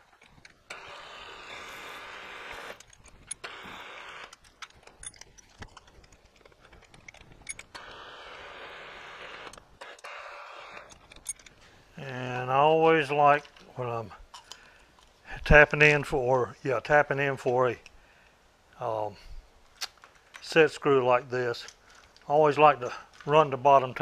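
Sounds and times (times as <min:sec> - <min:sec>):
steady hiss: 0:07.6 - 0:24.0.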